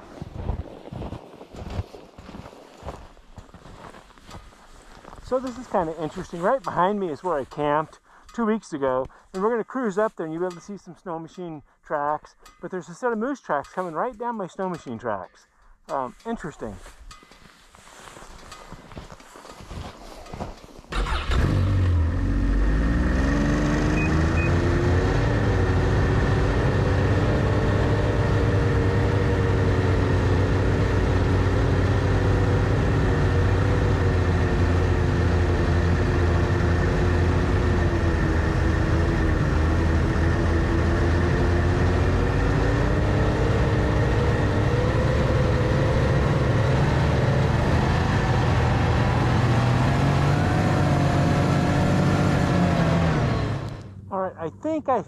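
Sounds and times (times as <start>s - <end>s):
snowmobile engine running: 5.2s - 8.7s, 29.1s - 54.3s.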